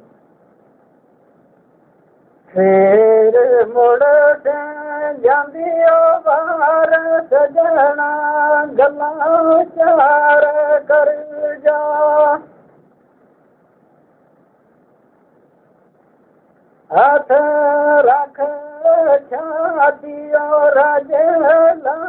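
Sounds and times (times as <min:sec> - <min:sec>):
man singing unaccompanied: 0:02.4 - 0:12.6, 0:16.9 - 0:22.0.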